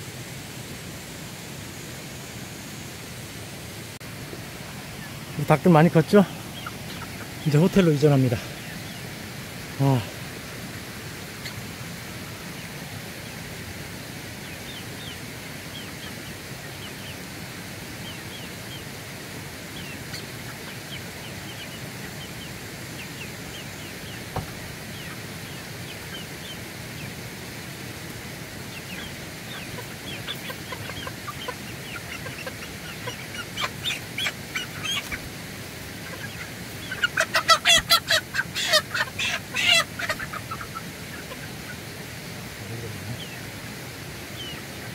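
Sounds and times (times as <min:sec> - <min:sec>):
outdoor hiss: 0:00.0 - 0:44.9
chicks peeping: 0:04.3 - 0:10.2, 0:11.3 - 0:13.4, 0:14.3 - 0:18.9, 0:19.6 - 0:44.9
chicken squawks: 0:06.1 - 0:09.0, 0:28.7 - 0:35.3, 0:35.9 - 0:41.9.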